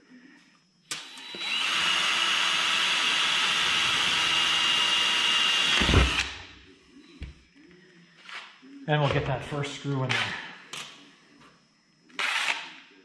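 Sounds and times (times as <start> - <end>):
cordless drill boring metal: 0.9 - 6.4, 12.2 - 12.6.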